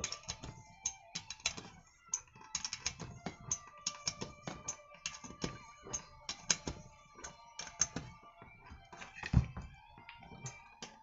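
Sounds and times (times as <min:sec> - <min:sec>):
metallic clicks of hand tools: 0:00.0 - 0:08.1.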